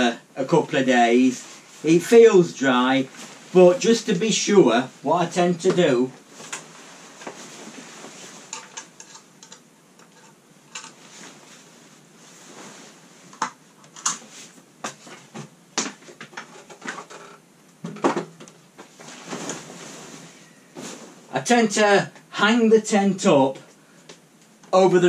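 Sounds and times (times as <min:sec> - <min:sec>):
tent fabric rustling: 0:02.8 - 0:05.0, 0:06.2 - 0:09.0, 0:11.0 - 0:13.3, 0:18.8 - 0:21.3.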